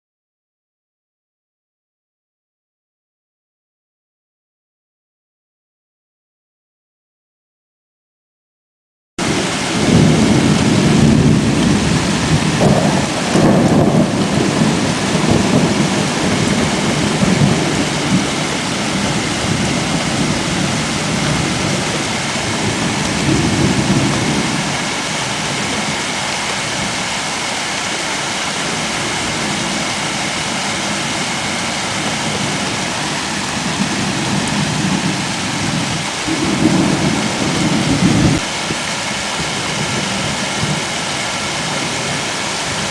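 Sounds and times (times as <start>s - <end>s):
rolling thunder: 9.2s - 25.9s, 28.7s - 38.9s
rain hissing: 9.2s - 42.9s.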